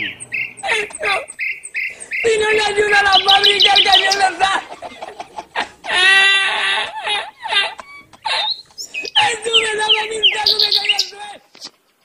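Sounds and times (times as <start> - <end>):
man wheezing laughter: 4.5 - 8.7.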